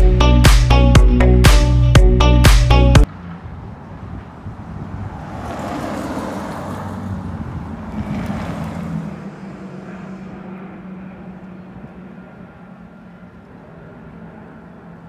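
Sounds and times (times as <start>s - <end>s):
vehicle passing: 3.0s - 15.0s.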